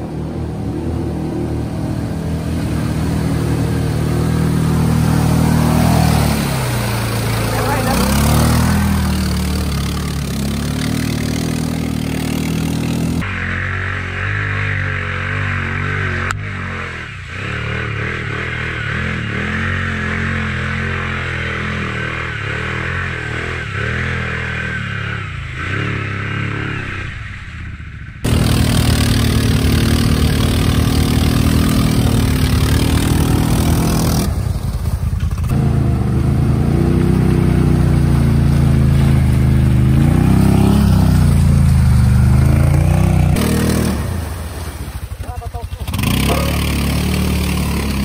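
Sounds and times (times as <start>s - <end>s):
vehicle engine revving hard: 1.7s - 27.1s, 28.2s - 34.4s, 35.4s - 48.0s.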